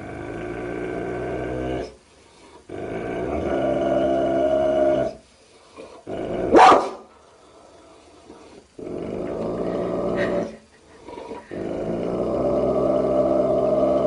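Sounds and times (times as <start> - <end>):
dogs growling: 0.0 - 6.8, 7.5 - 14.0
dog barking: 6.5 - 7.0.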